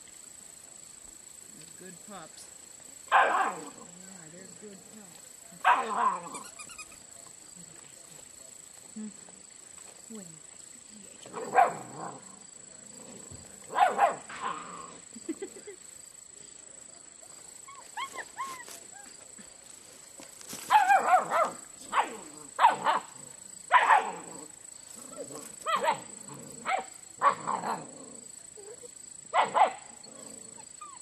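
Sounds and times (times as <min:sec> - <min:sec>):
puppies barking and yipping: 0:05.6 - 0:07.0, 0:17.6 - 0:19.2.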